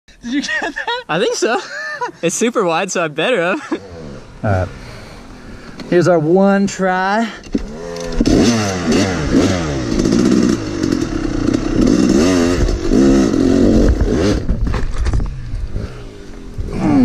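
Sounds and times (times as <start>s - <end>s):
dirt bike engine revving: 3.7s - 5.4s, 7.6s - 17.0s
bike crashing knocks and scrape: 14.0s - 15.8s.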